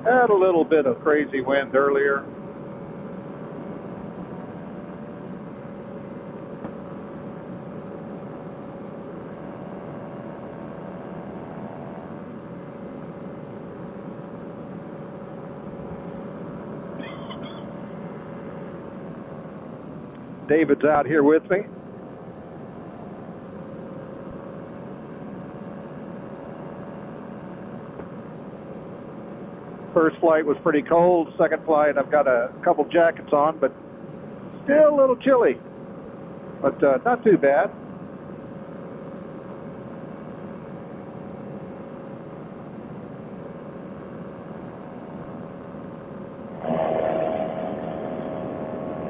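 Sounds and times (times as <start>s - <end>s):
paramotor engine droning: 0.0s - 30.7s, 43.5s - 49.0s.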